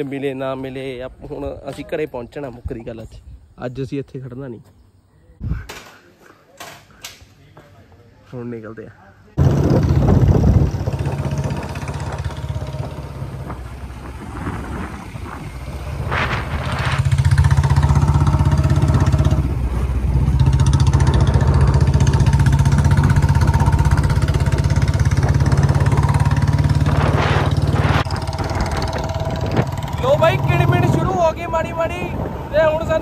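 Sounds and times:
motorcycle engine running: 9.4 - 31.5.

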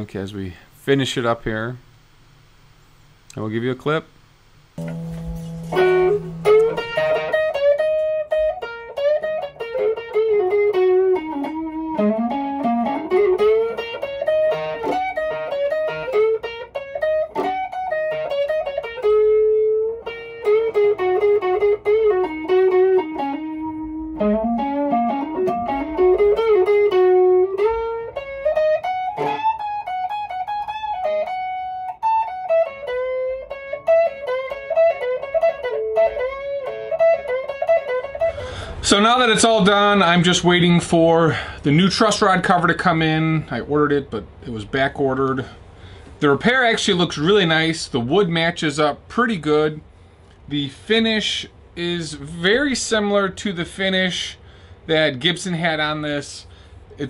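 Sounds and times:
electric guitar lead line: 4.8 - 40.4.

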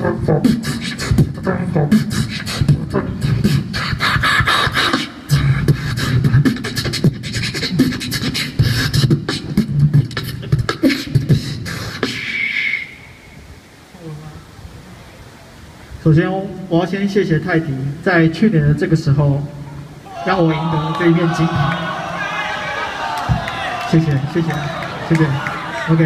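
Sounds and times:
beatboxing into a microphone: 0.0 - 13.1.

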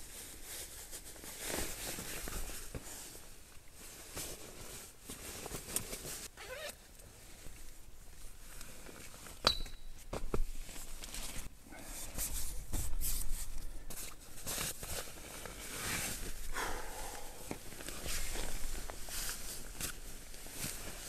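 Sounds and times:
clothing rustling: 10.1 - 21.0.

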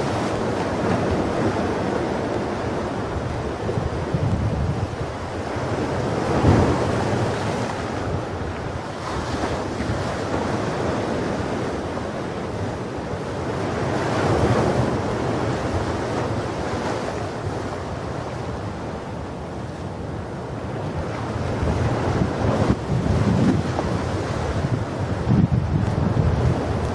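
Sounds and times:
ocean waves washing onto beach: 0.0 - 26.9.

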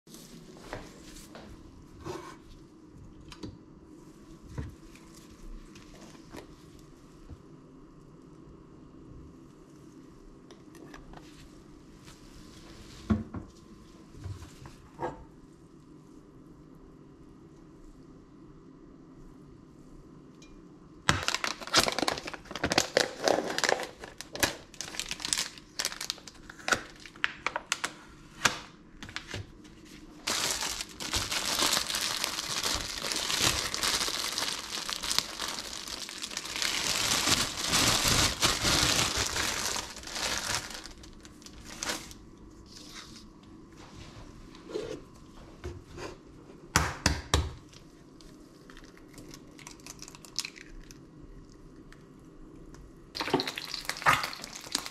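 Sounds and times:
plastic bag crinkling: 21.1 - 27.9, 30.0 - 42.2, 53.2 - 54.9
plastic packaging crinkling: 21.1 - 28.0, 30.0 - 42.3, 53.2 - 54.9.

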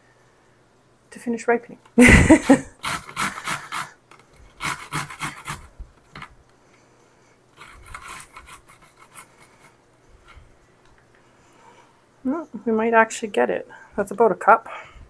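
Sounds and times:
grating on metal grater: 2.8 - 5.7, 7.6 - 9.7.

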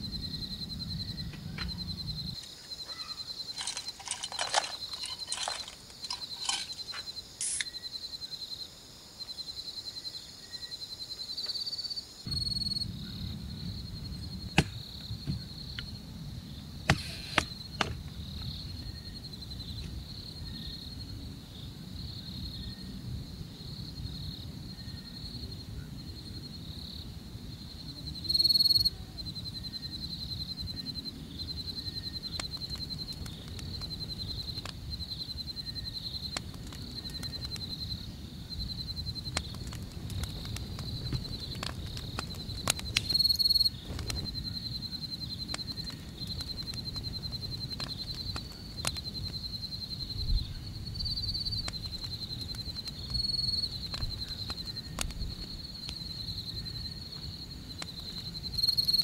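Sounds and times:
night insects trilling: 0.0 - 59.0
sharp clicks and snaps: 36.3 - 37.7, 39.2 - 43.3, 45.5 - 49.4, 51.6 - 56.0.

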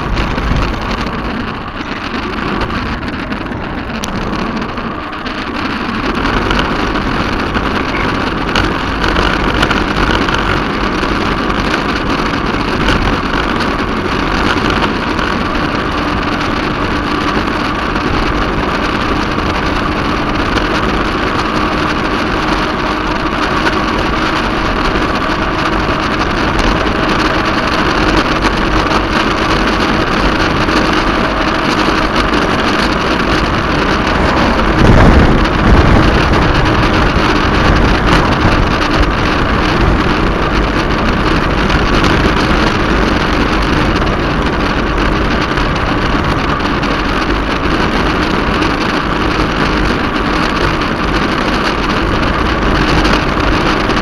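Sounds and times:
tyre and road rumble: 0.0 - 54.0
wind on microphone: 0.0 - 54.0.

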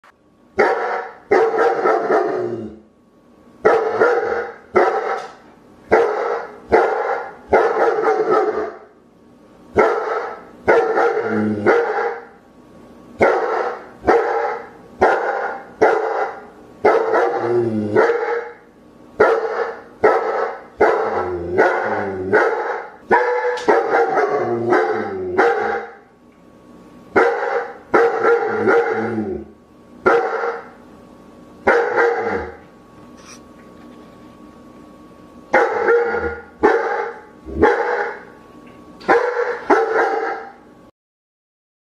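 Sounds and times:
dog barking: 0.6 - 2.4, 3.6 - 8.9, 9.8 - 12.4, 13.2 - 18.6, 19.2 - 26.0, 27.2 - 29.0, 30.1 - 30.7, 31.7 - 32.6, 35.5 - 38.3, 39.1 - 40.6.

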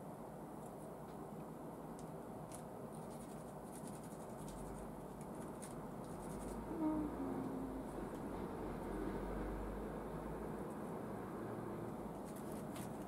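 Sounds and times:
small parts clicking and scratching: 2.0 - 6.6, 12.1 - 13.0.

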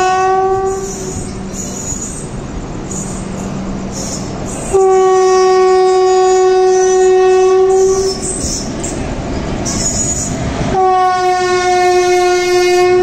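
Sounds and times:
train horn blast: 0.0 - 1.4, 4.7 - 8.3, 10.7 - 13.0
rumble of running trains: 0.0 - 13.0.

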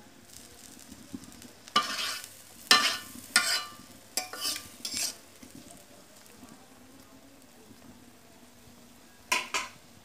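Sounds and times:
light sizzle: 0.0 - 10.0
spatula scraping a wok: 1.3 - 5.6.

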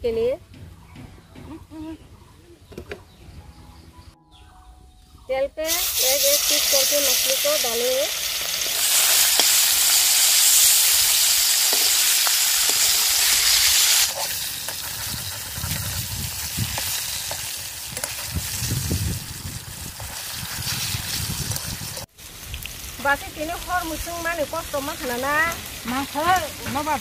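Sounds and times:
fish sizzling in hot oil: 5.6 - 27.0.

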